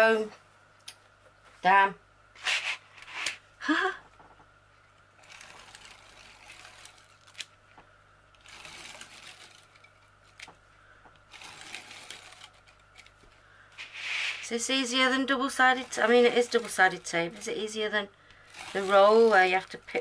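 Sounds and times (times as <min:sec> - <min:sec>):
tape rustling and scraping: 0:02.4 - 0:03.4, 0:05.2 - 0:07.6, 0:08.3 - 0:20.0
sharp noisy scrapes: 0:13.8 - 0:14.7.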